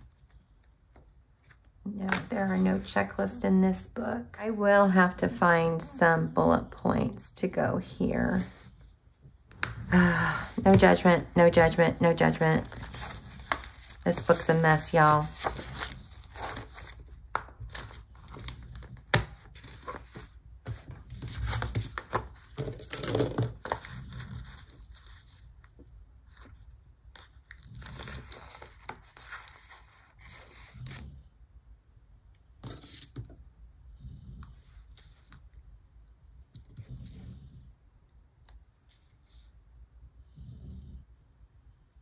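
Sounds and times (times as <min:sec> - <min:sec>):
paper rustling: 0:12.2 - 0:18.9.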